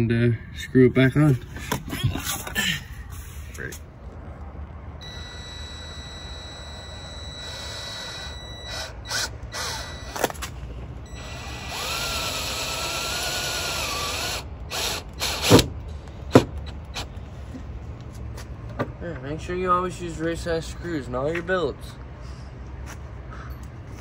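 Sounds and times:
cordless drill motor: 0:05.0 - 0:10.4, 0:11.1 - 0:15.6.

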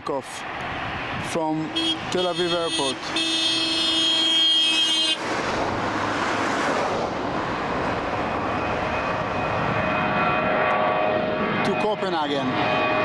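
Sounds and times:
jet engine roar: 0:00.1 - 0:13.0
steady engine tones: 0:00.3 - 0:13.0.

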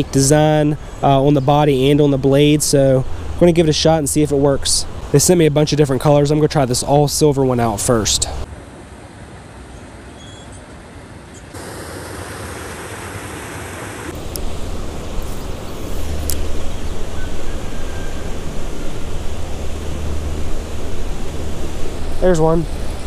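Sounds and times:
creek water flowing: 0:11.6 - 0:23.0.

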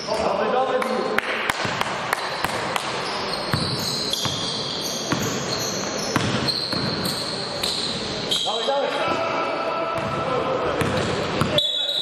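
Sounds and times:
sneakers squeaking: 0:00.0 - 0:00.4, 0:01.6 - 0:08.8, 0:10.0 - 0:12.0
basketball bouncing on gym floor: 0:01.5 - 0:05.5, 0:06.1 - 0:08.5, 0:10.8 - 0:11.6.

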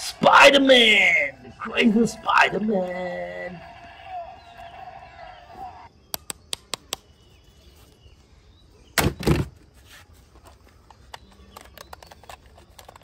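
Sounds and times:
plastic toys clicking: 0:10.6 - 0:13.0.

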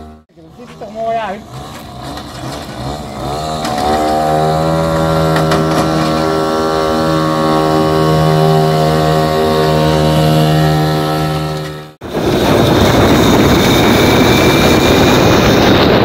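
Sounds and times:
moped engine at high revs: 0:00.0 - 0:16.0.

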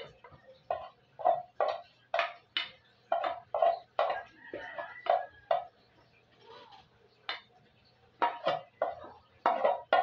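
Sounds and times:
metal spoon scraping a pot: 0:00.0 - 0:02.0, 0:03.1 - 0:05.8, 0:08.2 - 0:10.0.

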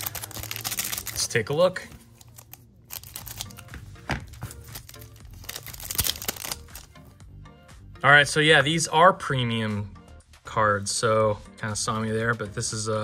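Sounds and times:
card pack wrapper tearing: 0:00.0 - 0:03.7, 0:04.4 - 0:06.9
soft background music: 0:00.0 - 0:13.0.

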